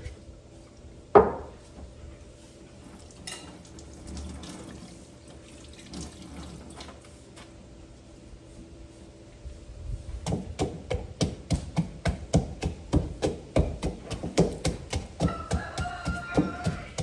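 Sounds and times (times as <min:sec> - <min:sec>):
pestle pounding in wooden mortar: 0:10.2 - 0:17.0.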